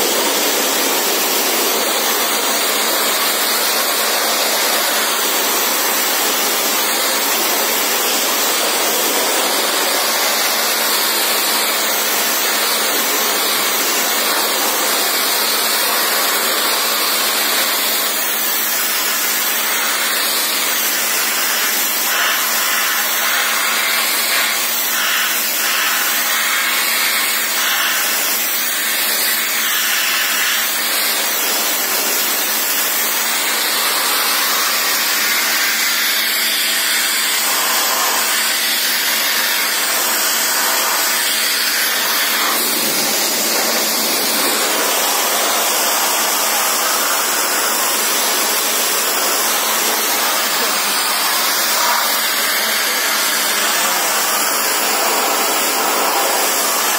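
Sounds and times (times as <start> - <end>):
pressure washer spray hiss: 0.0 - 56.9.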